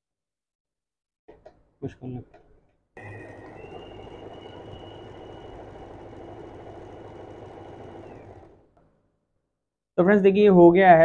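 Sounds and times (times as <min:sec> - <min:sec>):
sewing machine needle clatter: 0:02.3 - 0:08.9
sewing machine motor whine: 0:03.0 - 0:09.0.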